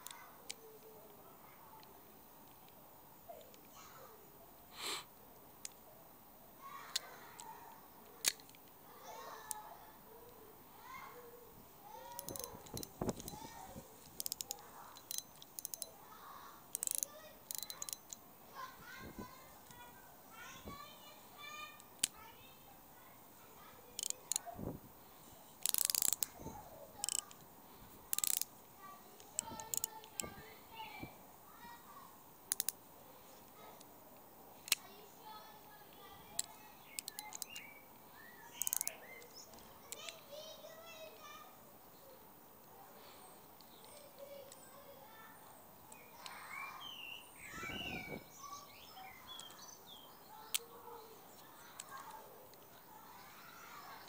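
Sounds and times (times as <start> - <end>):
rustle: 0.0 - 54.0
small birds chirping: 0.0 - 54.0
fishing reel ratchet clicking: 12.1 - 13.4, 14.0 - 15.9, 16.7 - 18.2, 24.0 - 24.4, 25.6 - 26.3, 27.0 - 27.4, 28.1 - 28.5, 29.4 - 30.2, 32.5 - 32.8, 36.4 - 37.6, 38.6 - 39.0.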